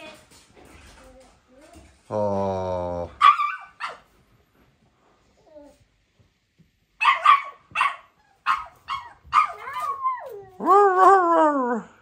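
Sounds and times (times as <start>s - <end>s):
puppies barking sharply: 3.2s - 4.0s, 7.0s - 9.9s
puppy whining: 5.3s - 5.9s, 8.2s - 11.9s.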